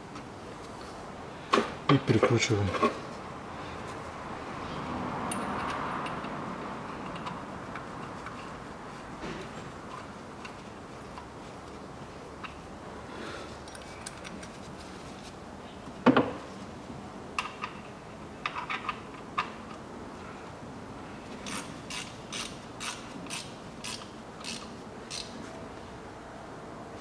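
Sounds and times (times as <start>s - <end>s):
ratchet wrench clicking: 21.4s - 25.4s.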